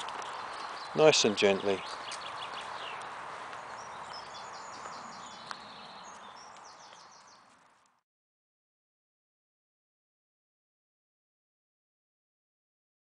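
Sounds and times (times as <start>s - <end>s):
steady outdoor hiss: 0.0s - 7.6s
songbird singing: 0.0s - 7.9s.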